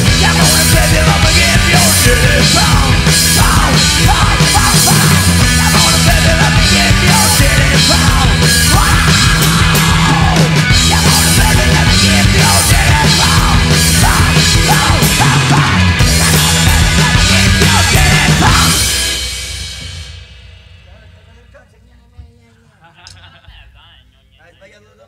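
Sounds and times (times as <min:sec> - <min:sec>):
singer shouting vocals: 0:00.0 - 0:19.0
rock band playing fast: 0:00.0 - 0:21.9.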